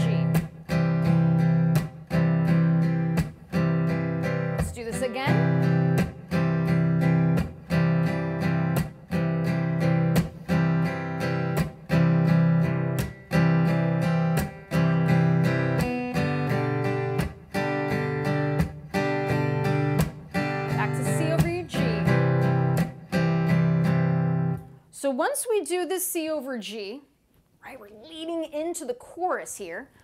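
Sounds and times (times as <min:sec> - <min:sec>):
acoustic guitar strumming: 0:00.0 - 0:24.8
percussive hand hits on guitar: 0:19.9 - 0:20.3.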